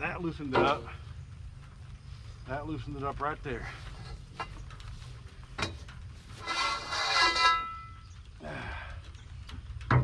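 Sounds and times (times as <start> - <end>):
metal scraping screech: 6.3 - 8.0.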